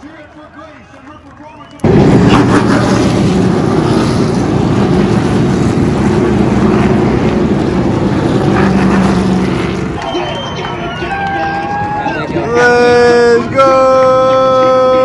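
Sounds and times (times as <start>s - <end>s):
race car engines drone: 0.0s - 15.0s.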